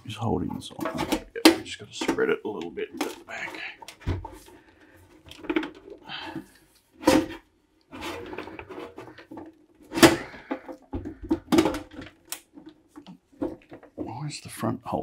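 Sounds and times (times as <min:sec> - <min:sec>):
metal scraping and rattling: 0:00.2 - 0:04.5, 0:07.0 - 0:14.2
metal cover clunks and knocks: 0:00.4 - 0:02.4, 0:03.0 - 0:04.4, 0:07.0 - 0:07.4, 0:08.0 - 0:14.0.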